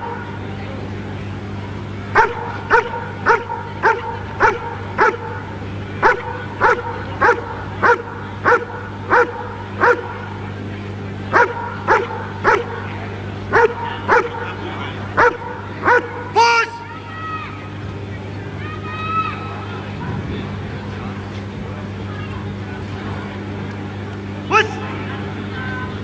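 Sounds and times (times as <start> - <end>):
steady low hum: 0.0 - 26.0
dog barking: 2.1 - 5.4, 6.0 - 10.3, 11.3 - 12.8, 13.5 - 14.6, 15.2 - 16.3.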